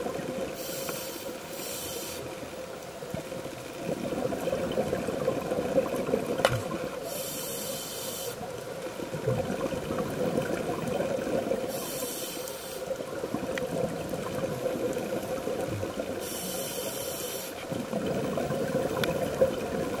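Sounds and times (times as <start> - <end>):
water noise: 0.0 - 20.0
regulator breaths hissing underwater: 0.6 - 2.3, 7.0 - 8.5, 11.6 - 13.0, 16.2 - 17.6.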